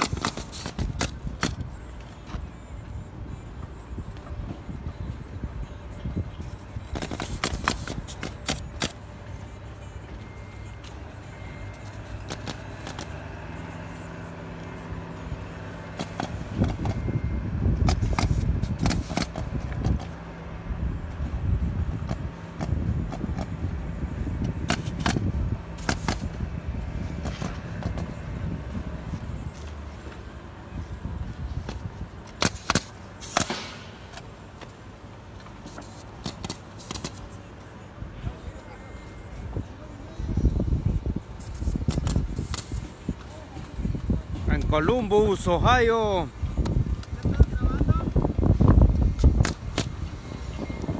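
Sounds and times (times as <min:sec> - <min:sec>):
pneumatic nailer firing: 0:00.0 - 0:01.6, 0:06.9 - 0:09.0, 0:12.3 - 0:13.2, 0:16.0 - 0:17.0, 0:17.8 - 0:20.2, 0:24.5 - 0:26.4, 0:31.6 - 0:34.3, 0:35.7 - 0:37.2, 0:41.4 - 0:42.9, 0:49.2 - 0:50.0
nail gun firing: 0:32.3 - 0:34.0.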